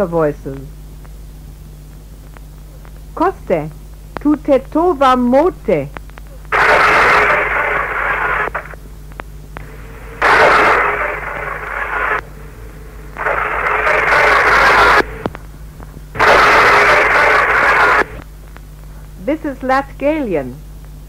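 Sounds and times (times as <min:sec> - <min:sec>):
soft hiss and hum: 0:00.0 - 0:21.0
bursts of radio noise: 0:06.3 - 0:08.8, 0:09.6 - 0:18.3
faint voice: 0:16.2 - 0:18.2.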